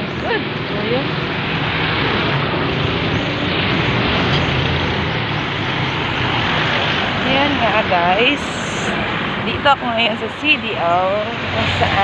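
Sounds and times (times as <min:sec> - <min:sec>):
street traffic passing: 0:00.0 - 0:12.0.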